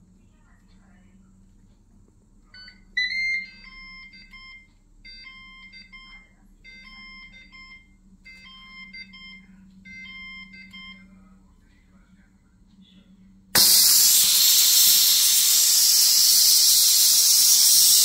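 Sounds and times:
multi-cooker beeping alert: 0:02.6 - 0:11.1.

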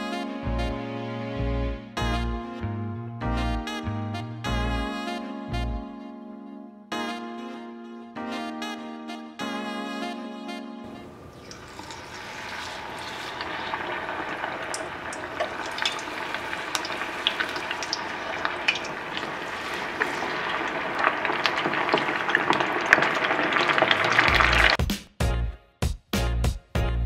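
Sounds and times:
chicken deep-frying in oil: 0:10.9 - 0:24.8.

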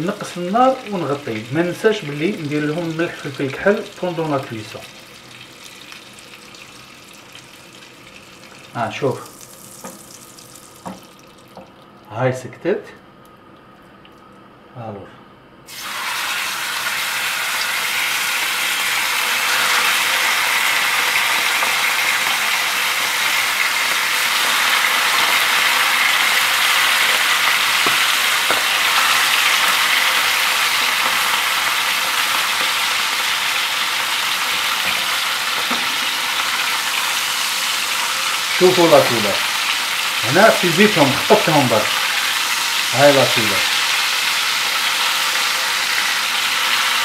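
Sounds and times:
meat sizzling in frying pan: 0:00.0 - 0:11.7, 0:15.7 - 0:47.0.

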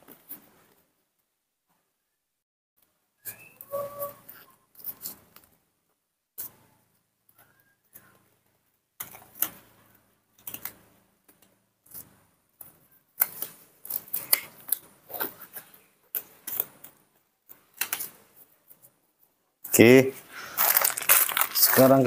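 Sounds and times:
handling clicks and crackles: 0:20.6 - 0:22.0.

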